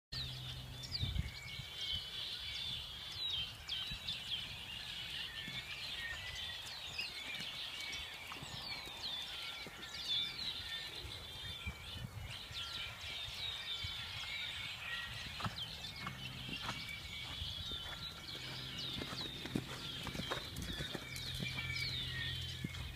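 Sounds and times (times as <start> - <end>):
small birds chirping: 0.2 - 22.9
horse hooves on sand: 3.5 - 22.9.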